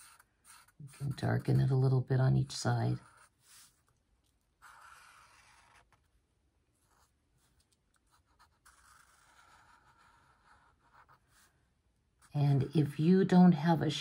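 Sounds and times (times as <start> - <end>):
marker squeaking on paper: 0.0 - 1.9, 4.6 - 6.1, 6.8 - 11.5.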